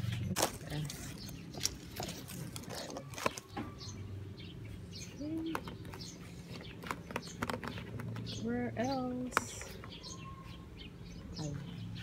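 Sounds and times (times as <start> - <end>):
leaves and twigs rustling: 0.0 - 3.9.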